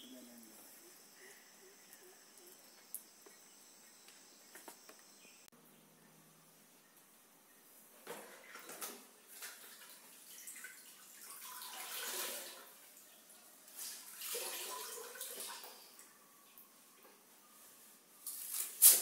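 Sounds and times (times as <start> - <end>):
mop sloshing water in bucket: 13.8 - 15.6.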